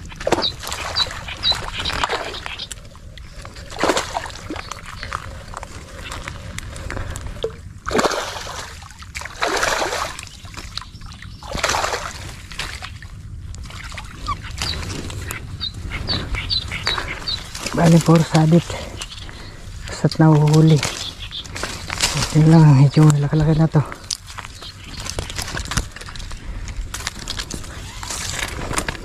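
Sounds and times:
water splashing and sloshing: 0:00.0 - 0:29.0.

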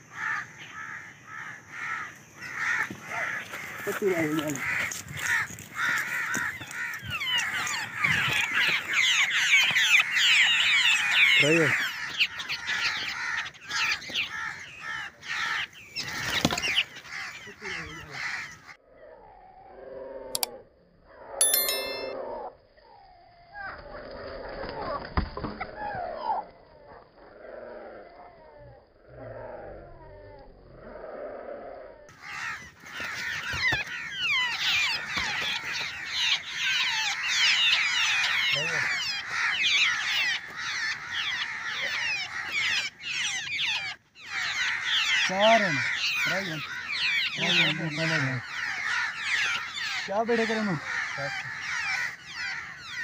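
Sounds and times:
babblers chattering: 0:03.0 - 0:18.4, 0:32.3 - 0:52.2.

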